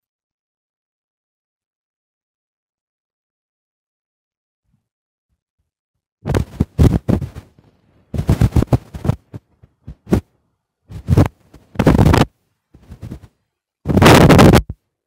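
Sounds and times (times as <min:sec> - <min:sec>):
microphone handling noise: 0:06.2 - 0:10.3, 0:10.9 - 0:14.8.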